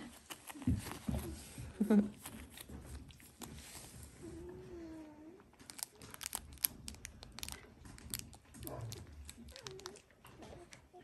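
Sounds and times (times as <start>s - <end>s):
claws clicking and scratching: 5.6s - 10.8s
puppy whining: 8.6s - 11.0s.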